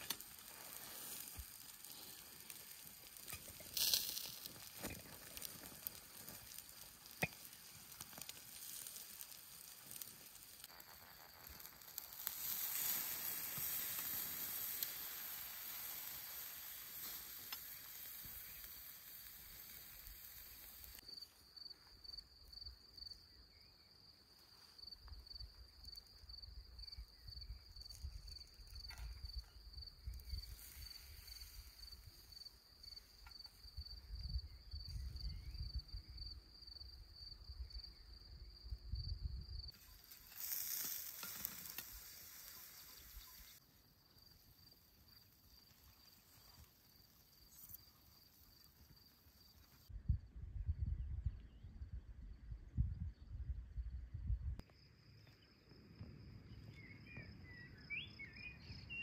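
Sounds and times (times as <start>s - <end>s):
fish sizzling on grill: 0.0s - 21.0s, 39.7s - 43.6s
insect chirping: 0.0s - 59.0s
wind rumbling on microphone: 33.7s - 39.7s, 49.9s - 54.6s.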